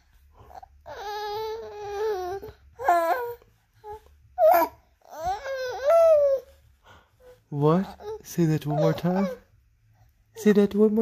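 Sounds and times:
baby cooing and babbling: 0.4s - 6.6s, 7.2s - 9.5s.

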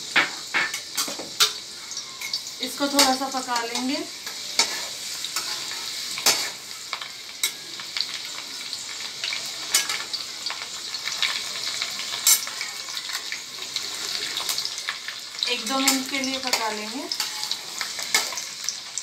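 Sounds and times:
garlic sizzling in hot oil: 0.0s - 19.0s.

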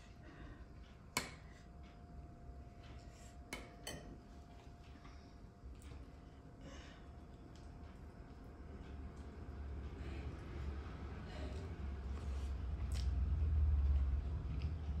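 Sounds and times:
metal spoon clinking on plate: 3.6s - 4.2s.

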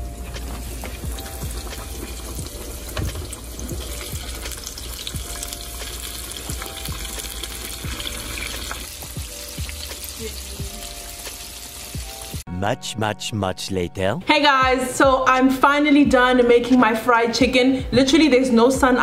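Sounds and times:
chicken deep-frying in oil: 0.0s - 12.4s.

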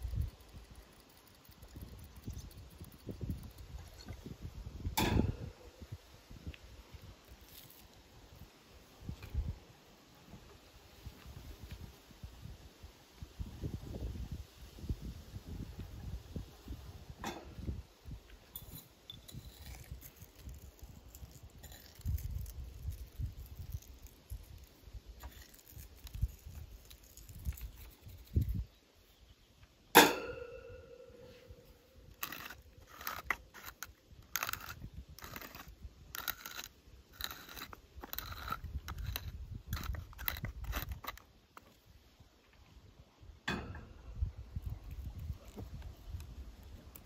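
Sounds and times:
rustling: 19.4s - 28.7s
sharp metallic clank: 29.9s - 31.6s.

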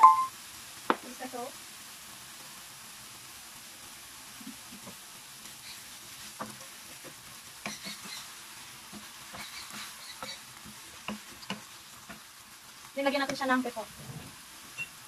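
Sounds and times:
chicken sizzling in frying pan: 0.0s - 15.0s
spatula scraping and knocking pan: 5.8s - 12.4s.

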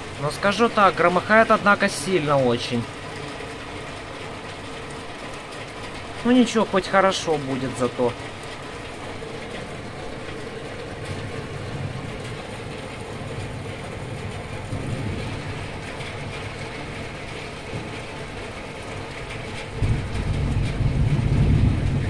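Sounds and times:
heavy rain pouring: 0.0s - 22.0s
deep thunder rumble: 9.0s - 22.0s.

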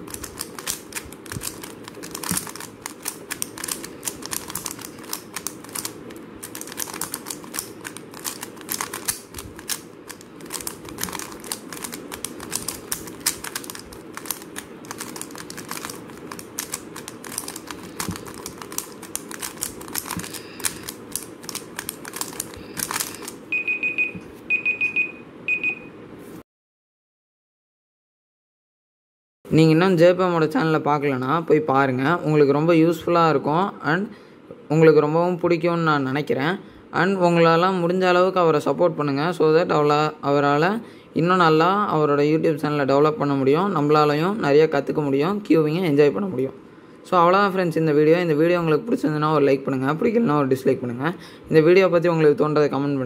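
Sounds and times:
speed cube clicking: 0.0s - 23.4s.

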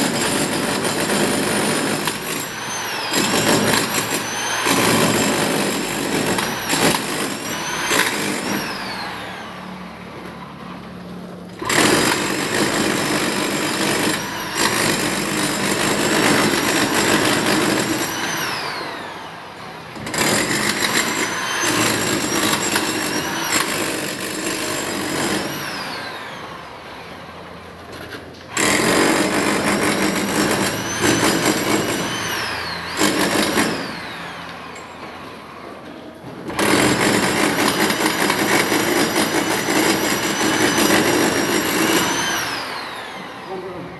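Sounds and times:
rotary hammer chiselling brick: 36.5s - 42.2s.

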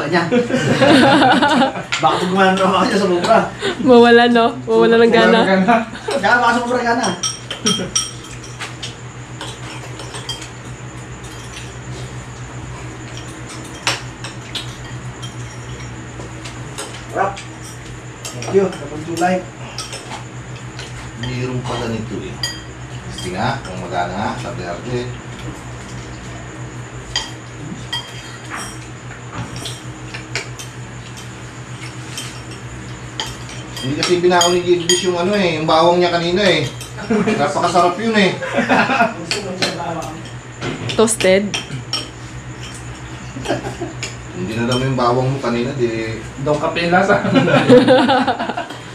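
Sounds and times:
steady low hum: 0.0s - 48.9s
spoons clinking on ceramic bowls: 6.1s - 10.5s, 17.6s - 23.8s, 27.1s - 28.8s, 33.2s - 35.4s, 41.5s - 45.0s.

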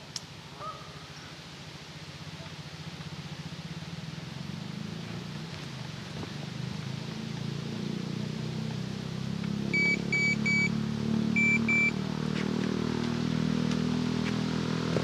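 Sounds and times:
engine droning: 0.0s - 15.0s
electronic bite alarm beeps: 9.7s - 10.8s, 11.4s - 12.0s.

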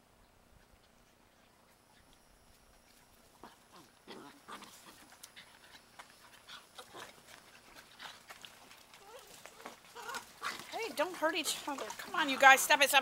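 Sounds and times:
puppies scuffling: 1.4s - 13.0s
puppies whining and yipping: 3.0s - 10.4s.

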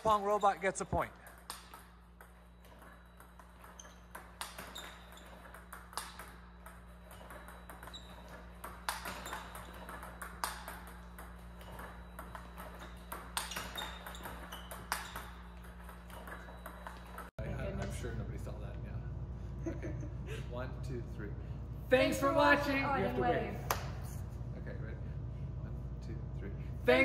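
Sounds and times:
ping pong ball clicking: 1.2s - 17.3s
steady low hum: 17.2s - 27.0s.

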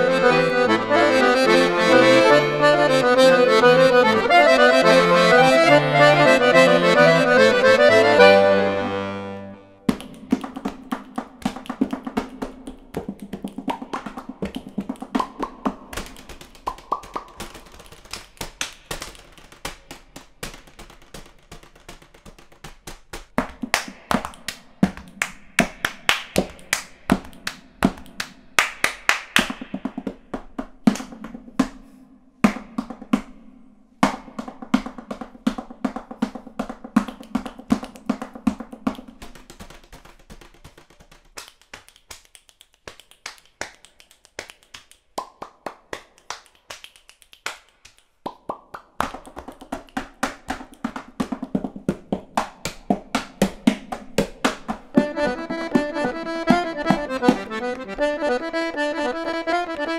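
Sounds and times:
tapping percussion rhythm: 0.0s - 9.0s, 9.8s - 31.8s, 34.0s - 59.9s
accordion music: 0.0s - 9.8s, 54.9s - 59.9s.

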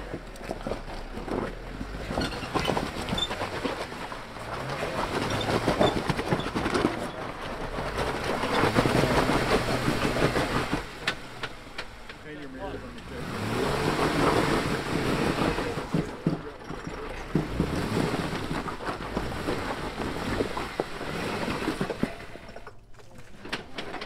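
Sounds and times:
off-road vehicle engine revving: 0.0s - 22.8s
tyres crunching over rock and gravel: 0.0s - 24.0s.

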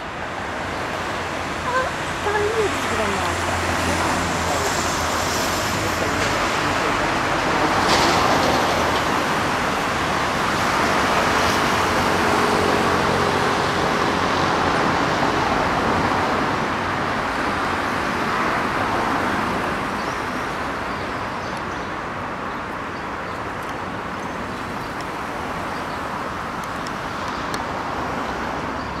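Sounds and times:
road traffic noise: 0.0s - 29.0s.

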